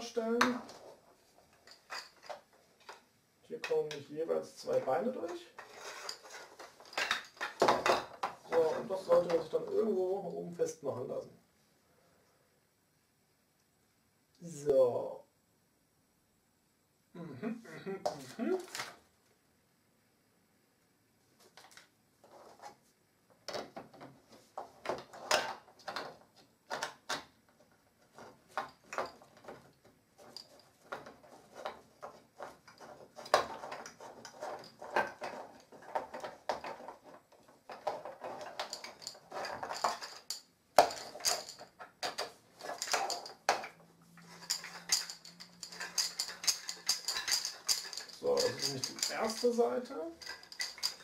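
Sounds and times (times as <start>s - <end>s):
wooden beads clattering: 4.6s - 9.9s, 24.7s - 51.0s
wooden parts knocking and clicking: 4.7s - 9.9s, 23.4s - 51.0s.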